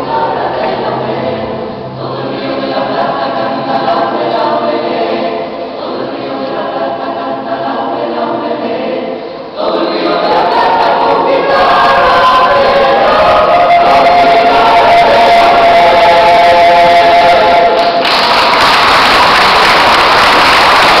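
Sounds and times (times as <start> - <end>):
choir singing: 0.0 - 21.0
audience applause: 17.8 - 21.0.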